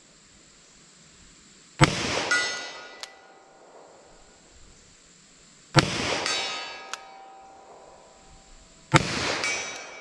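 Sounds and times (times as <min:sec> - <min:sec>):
steel target ringing: 0:01.8 - 0:04.0, 0:05.8 - 0:10.0
revolver shot echoing: 0:05.8 - 0:10.0.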